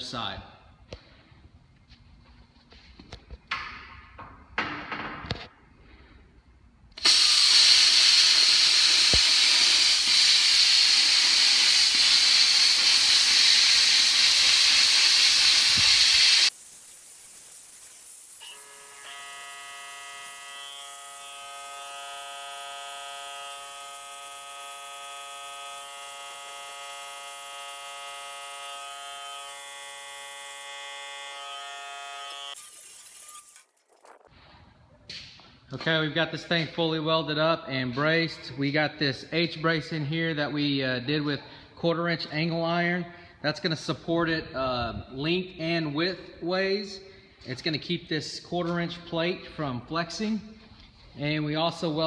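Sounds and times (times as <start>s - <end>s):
plasma cutter hissing: 7.0s - 19.0s.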